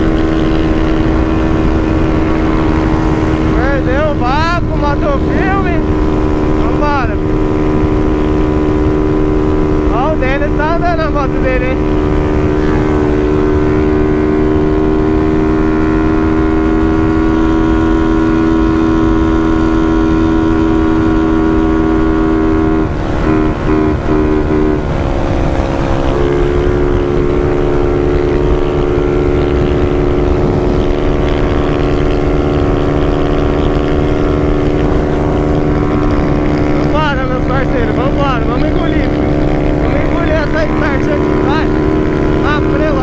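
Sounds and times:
wind rushing: 0.0s - 15.1s, 28.8s - 33.2s
motorcycle engine at high revs: 0.0s - 43.0s.

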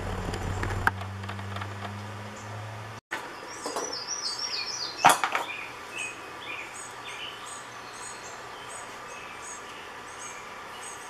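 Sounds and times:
small birds chirping: 3.3s - 11.0s.

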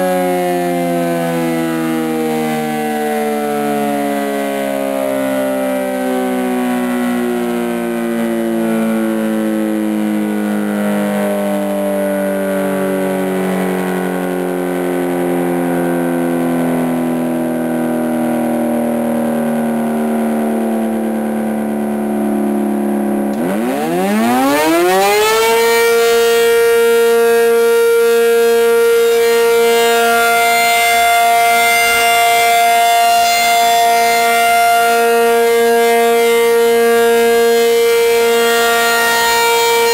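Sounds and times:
warning siren winding: 22.3s - 39.9s.

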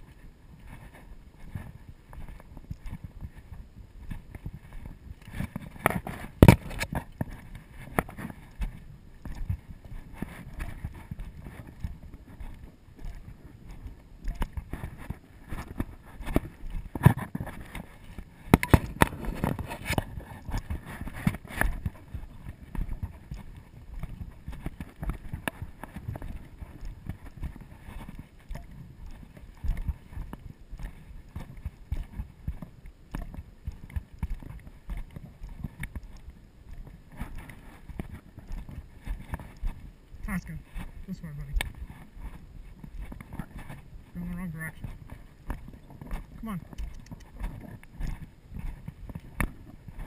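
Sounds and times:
knocks and rustling of rope: 0.0s - 40.0s
footsteps on dirt trail: 0.0s - 50.0s.

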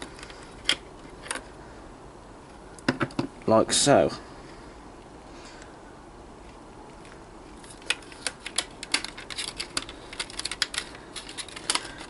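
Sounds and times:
plastic tray crackling and clicking: 7.7s - 12.0s.

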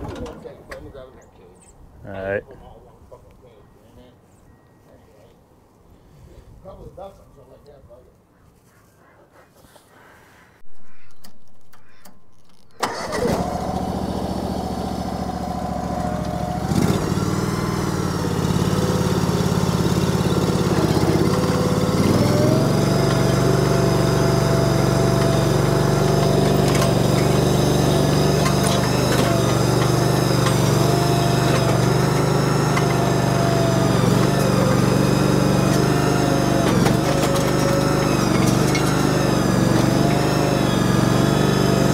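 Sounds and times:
engine starting and running: 0.0s - 0.9s, 11.2s - 41.9s.

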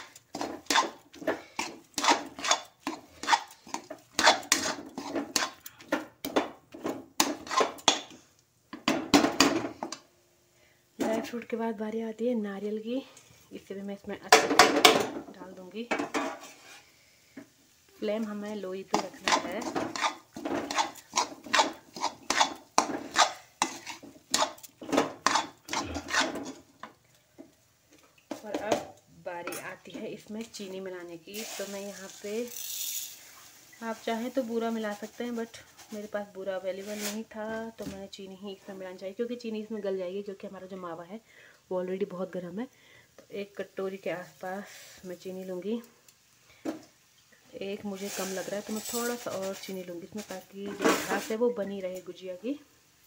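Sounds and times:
metal spatula scraping pan: 0.0s - 8.2s, 15.9s - 17.0s, 18.8s - 26.7s, 48.0s - 51.4s.

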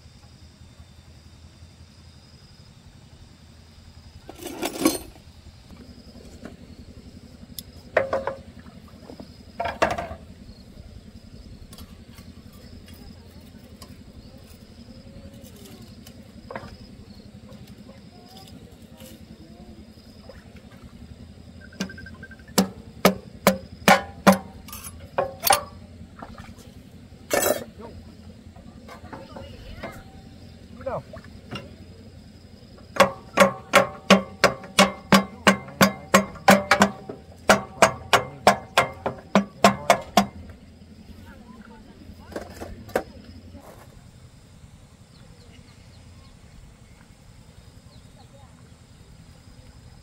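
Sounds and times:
hammer striking metal engine: 7.5s - 8.7s, 21.6s - 26.3s, 27.2s - 30.6s, 32.7s - 40.7s.

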